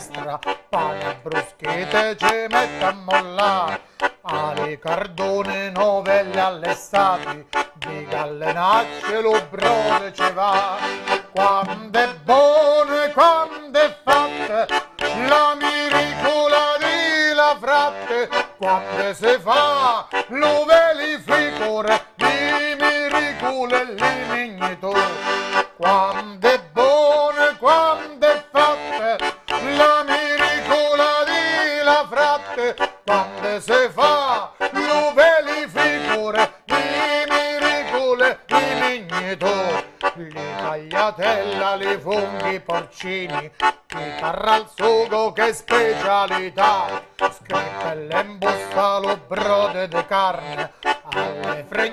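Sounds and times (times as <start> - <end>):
button accordion playing a tune: 0.0 - 51.9
man singing: 0.0 - 51.9.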